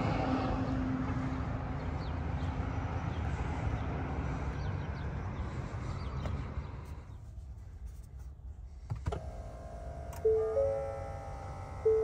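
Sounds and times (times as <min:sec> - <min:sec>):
vehicle low rumble: 0:00.0 - 0:12.0
hum: 0:09.2 - 0:12.0.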